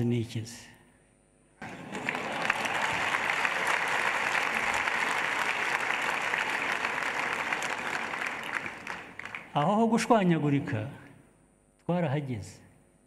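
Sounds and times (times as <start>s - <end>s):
large audience applauding: 1.6s - 9.7s.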